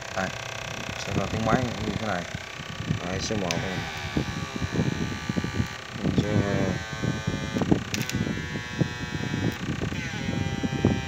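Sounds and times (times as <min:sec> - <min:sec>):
electrical inverter buzz: 0:00.0 - 0:11.0
irregular clicks: 0:07.6 - 0:08.2.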